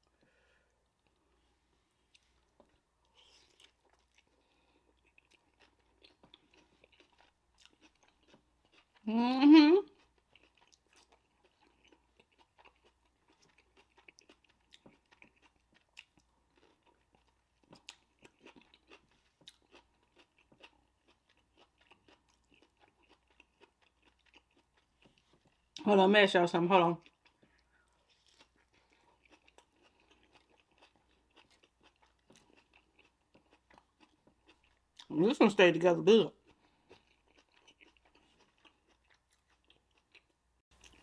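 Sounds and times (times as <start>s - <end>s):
chewing with mouth clicks: 2.0s - 9.1s, 9.9s - 25.8s, 27.0s - 35.2s, 36.3s - 41.0s.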